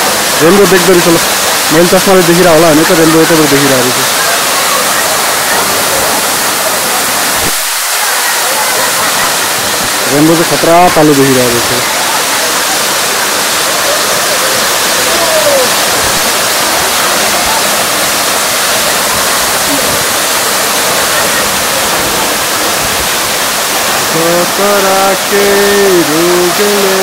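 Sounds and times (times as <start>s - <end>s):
waterfall rushing: 0.0s - 27.0s
person speaking: 24.0s - 27.0s.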